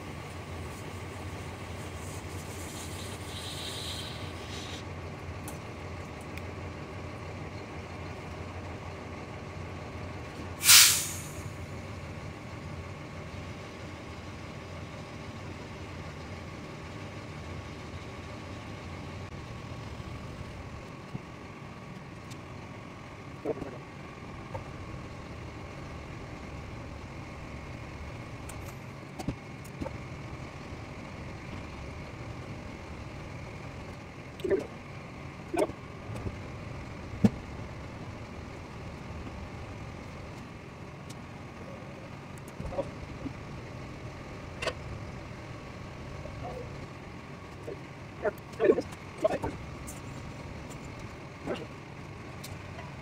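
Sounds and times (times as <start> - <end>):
loud hiss: 1.8 - 4.8, 10.6 - 11.6.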